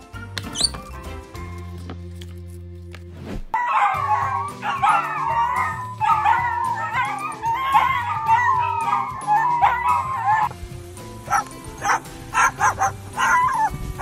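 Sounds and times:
background music: 0.0 - 14.0
dogs howling: 3.6 - 10.5, 11.3 - 14.0.

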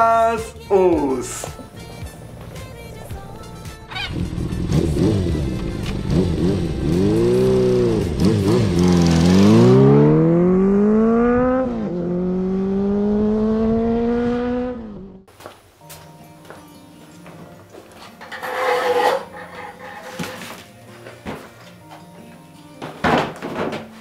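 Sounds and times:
motorcycle engine revving: 3.9 - 15.3.

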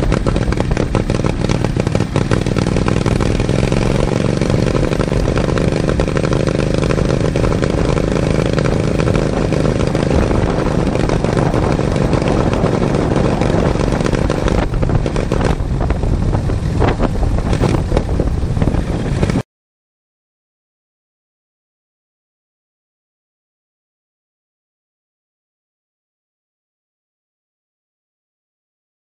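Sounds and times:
lawn mower engine running: 0.0 - 19.4
knocks and rattles: 10.0 - 19.4.

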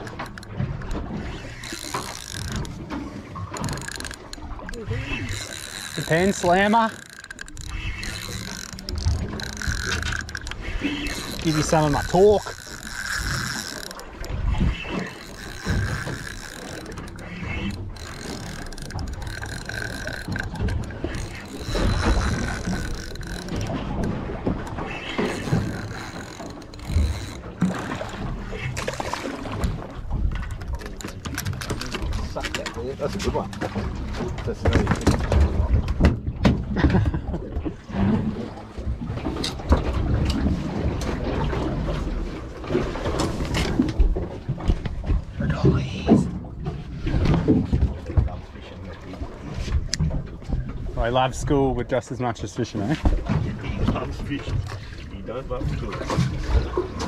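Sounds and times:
fishing reel gears whirring: 0.0 - 34.4.

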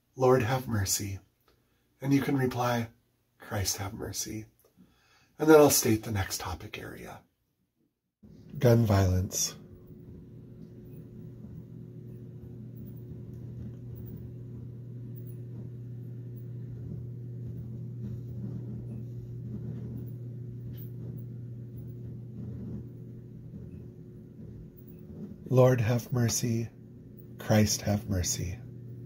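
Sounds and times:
steady low hum: 8.3 - 29.0.

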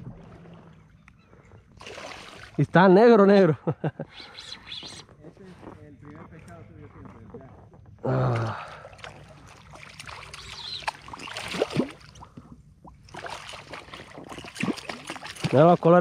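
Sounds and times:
water trickling and splashing: 0.0 - 2.6, 8.2 - 16.0.

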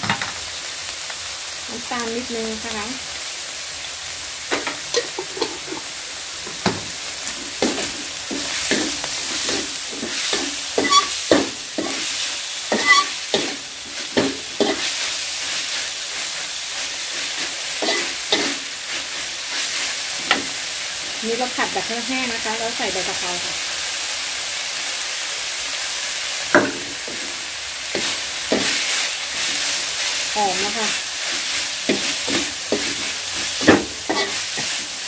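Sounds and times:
food sizzling in a wok: 0.0 - 35.0
metal spatula scraping a wok: 7.6 - 20.6, 27.1 - 35.0.

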